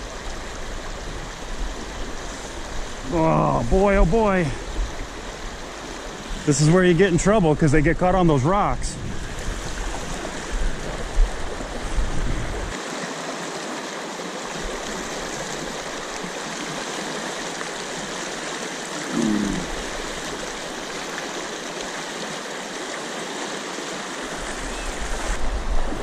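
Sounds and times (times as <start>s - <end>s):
river rushing over rocks: 9.2s - 26.0s.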